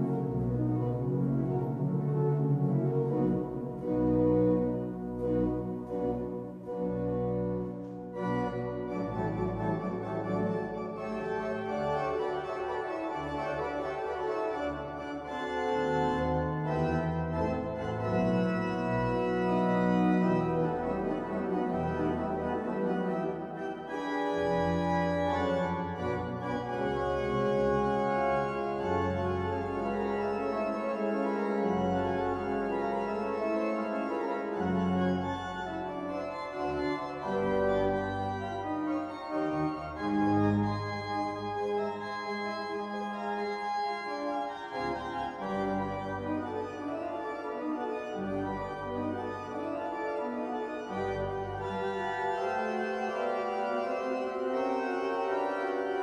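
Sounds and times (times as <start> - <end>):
pipe organ playing chords: 0.0 - 56.0.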